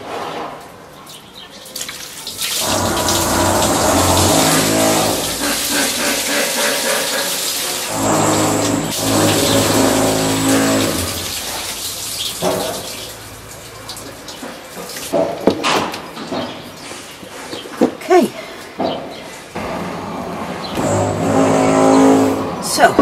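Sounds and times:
water splashing onto wooden decking: 1.1 - 17.2
construction machine drone: 7.9 - 11.4, 19.6 - 22.8.

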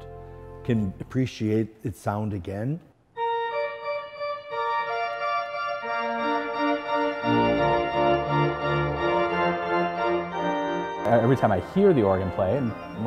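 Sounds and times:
pipe organ chords: 0.0 - 1.8, 3.1 - 13.0.

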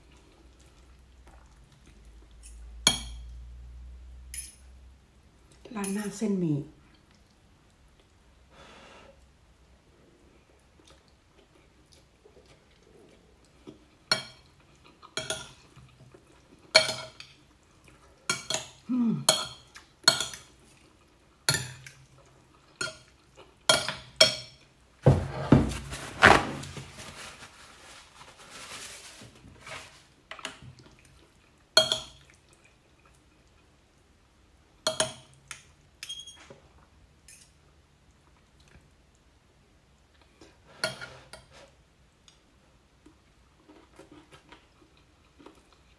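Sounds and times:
knock and shuffle: 25.0 - 28.3.

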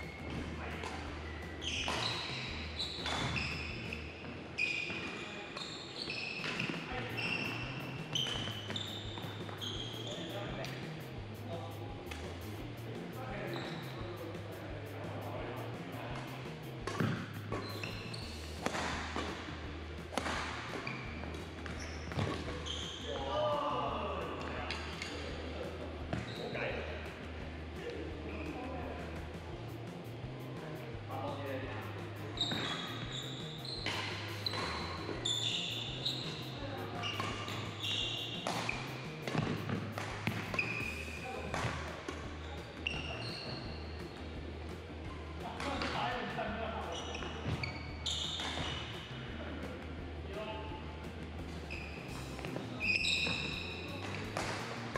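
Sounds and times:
shoes squeaking on wooden floor: 0.0 - 11.2, 13.2 - 14.3, 15.0 - 19.5, 20.1 - 23.4, 26.1 - 26.7, 31.2 - 44.1, 46.8 - 49.1, 51.5 - 54.9
racket striking shuttlecock: 20.1 - 20.8, 38.4 - 40.9.

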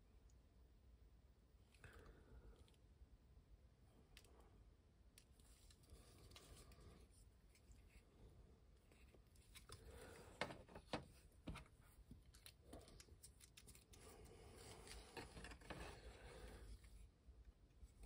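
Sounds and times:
plastic parts rubbing and scraping: 8.8 - 17.0.

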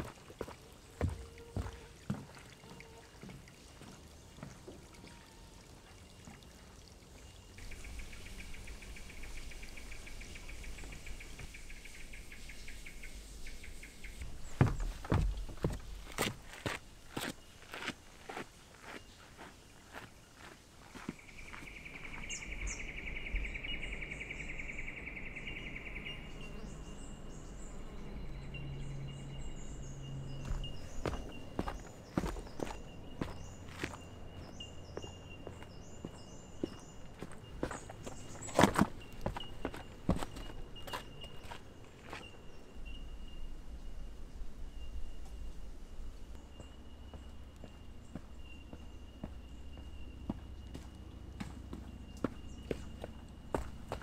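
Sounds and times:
water dripping: 0.0 - 11.5
water trickling: 0.0 - 11.6
insects chirping: 25.8 - 54.0.

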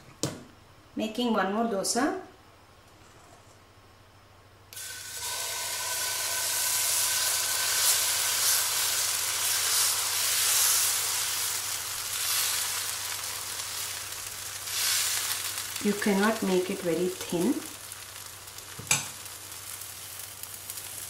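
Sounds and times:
batter sizzling on a skillet: 4.7 - 21.0.

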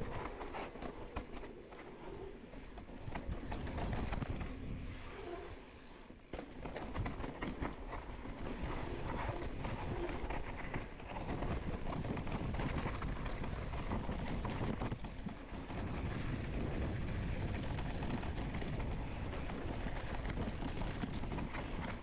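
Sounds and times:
wind on microphone: 6.9 - 22.0.

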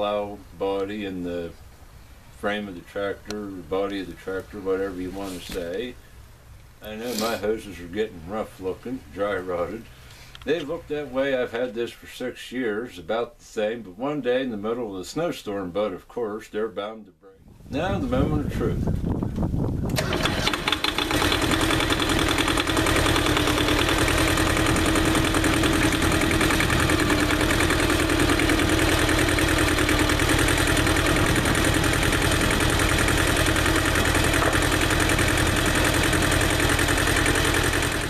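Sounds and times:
tractor diesel engine running: 0.8 - 11.0, 17.8 - 38.0
hydraulic whine: 19.9 - 38.0.

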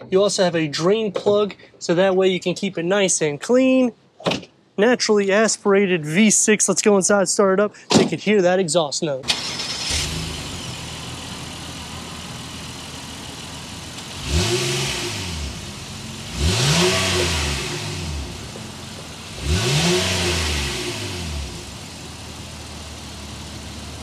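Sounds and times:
car engine idling and revving: 9.3 - 24.0.

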